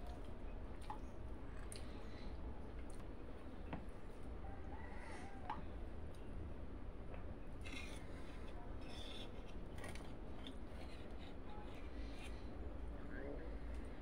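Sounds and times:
low steady hum: 0.0 - 14.0
chewing: 1.6 - 2.0, 7.6 - 12.4.

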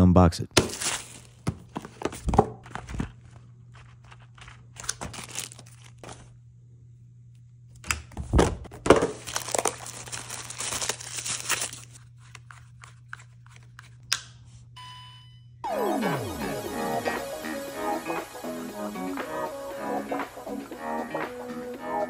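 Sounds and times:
low steady hum: 0.0 - 20.8
cardboard packaging rustling and tearing: 0.6 - 6.3, 8.7 - 13.7.

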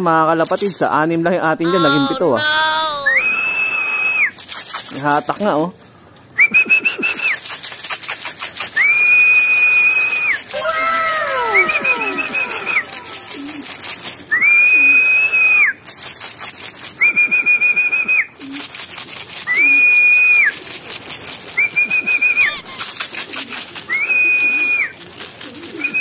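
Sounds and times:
high-pitched whistle calls: 1.8 - 4.4, 8.8 - 13.6, 21.7 - 23.0
short rapid clicks: 4.3 - 5.5, 7.0 - 14.3, 20.4 - 23.8.

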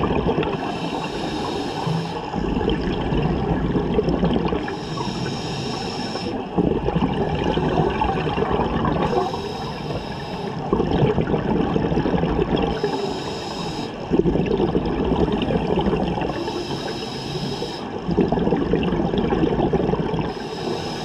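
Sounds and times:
rushing exhaled bubbles: 0.0 - 1.0, 1.8 - 4.8, 6.5 - 9.3, 10.6 - 12.9, 14.0 - 16.4, 18.0 - 20.5
hissing regulator inhale: 0.6 - 2.5, 4.6 - 6.5, 9.0 - 10.7, 12.7 - 14.1, 16.3 - 18.0, 20.3 - 21.0.

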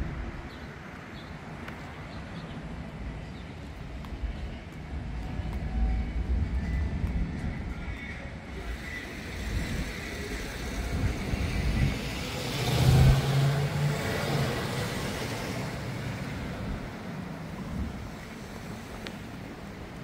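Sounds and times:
car driving past: 12.2 - 16.6.

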